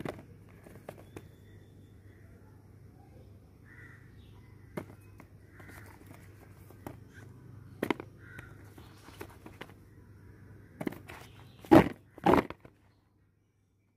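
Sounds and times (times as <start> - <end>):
faint bird call: 0.3 - 12.2
gourds knocking in plastic basket: 7.7 - 9.7, 10.8 - 12.7.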